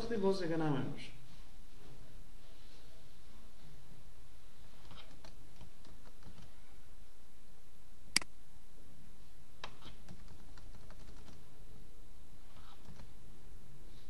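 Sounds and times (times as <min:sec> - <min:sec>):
low room hum: 0:00.0 - 0:14.0
computer mouse clicking: 0:04.8 - 0:06.5, 0:09.6 - 0:11.4, 0:12.6 - 0:13.1.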